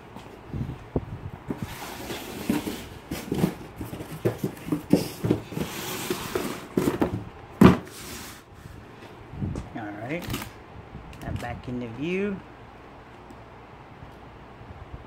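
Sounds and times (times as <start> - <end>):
cardboard box rustling: 1.5 - 8.4.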